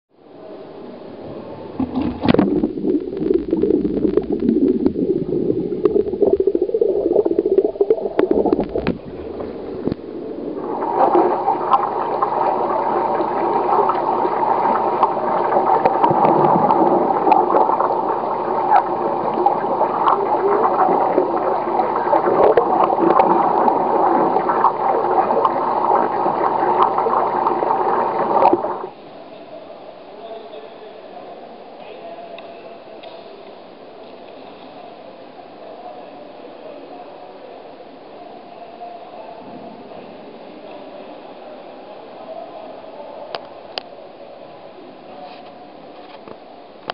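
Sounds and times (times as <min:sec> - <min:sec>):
rush of water: 0:01.8 - 0:28.9
water splashing and gurgling: 0:01.8 - 0:28.9.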